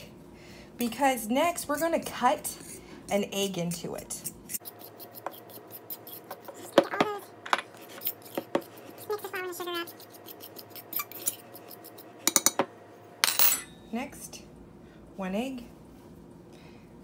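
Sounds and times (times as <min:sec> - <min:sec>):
fork scraping a glass bowl: 0:04.5 - 0:06.8, 0:07.8 - 0:12.2.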